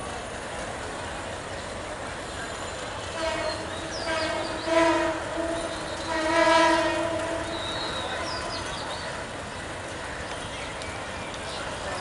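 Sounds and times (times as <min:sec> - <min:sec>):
locomotive horn blast: 0:03.1 - 0:08.4.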